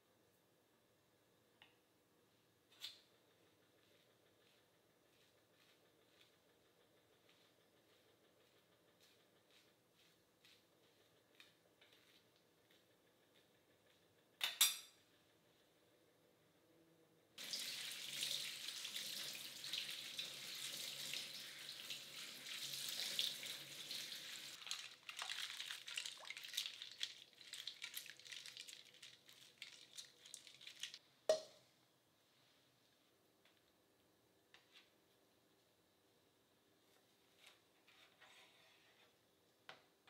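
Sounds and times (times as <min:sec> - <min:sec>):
faucet water running: 0:17.4 - 0:31.0.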